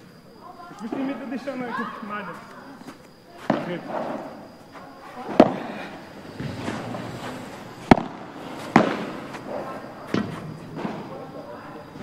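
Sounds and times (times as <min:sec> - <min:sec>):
padel ball struck by rackets: 0:07.8 - 0:09.4.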